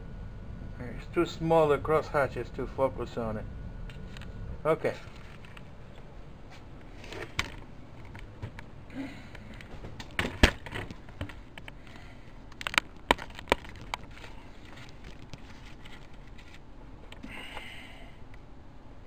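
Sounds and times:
faint low hum: 0.0s - 19.0s
sharp clicks and knocks: 9.4s - 11.8s, 12.5s - 14.2s.

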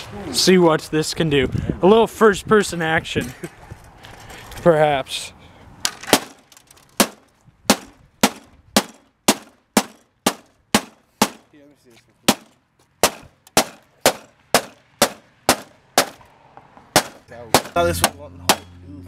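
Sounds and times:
hammer hitting plastic casing: 7.0s - 11.4s, 12.3s - 16.2s, 17.0s - 18.7s.

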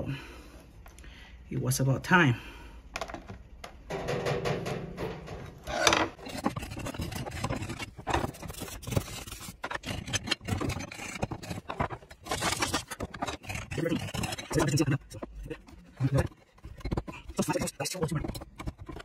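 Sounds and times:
metal tool scraping cast iron: 5.1s - 19.0s.

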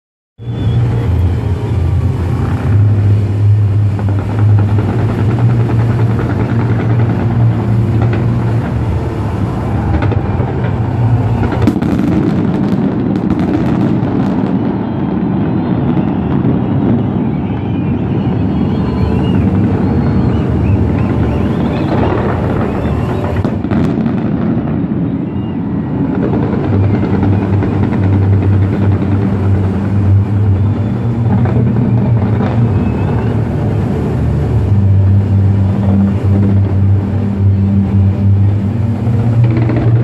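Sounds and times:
distant fireworks rumble: 0.4s - 40.0s
sharp firework cracks: 4.0s - 30.2s.

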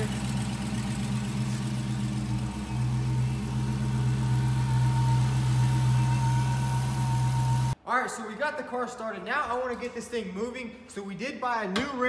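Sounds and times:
car engine idling: 0.0s - 7.8s
faint high whine: 1.4s - 7.8s.

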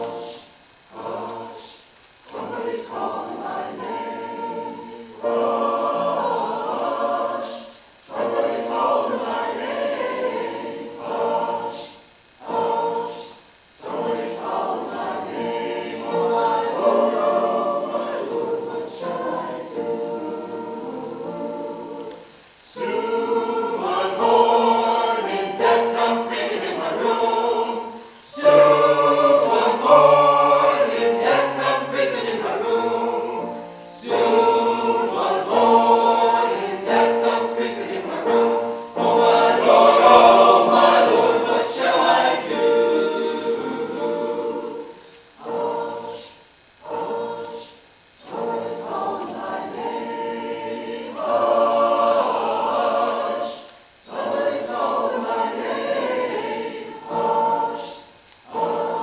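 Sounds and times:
church choir singing: 0.0s - 59.0s.

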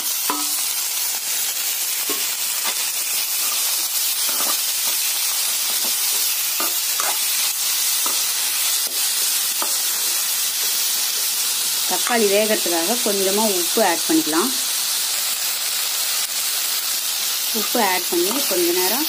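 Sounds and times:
metal spoon scraping a pan: 0.0s - 0.8s, 2.1s - 12.3s, 17.6s - 18.8s
vegetables sizzling in hot oil: 0.0s - 19.0s.

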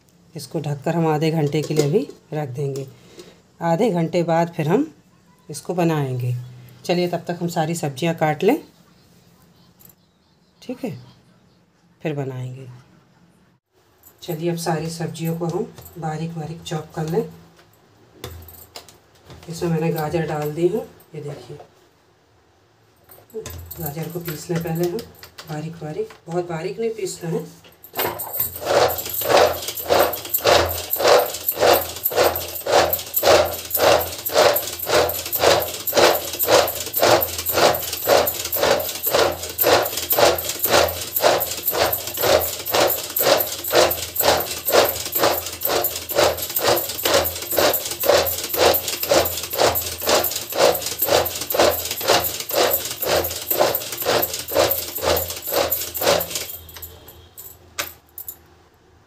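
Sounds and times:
vegetable chopper chopping carrots: 28.0s - 56.8s.

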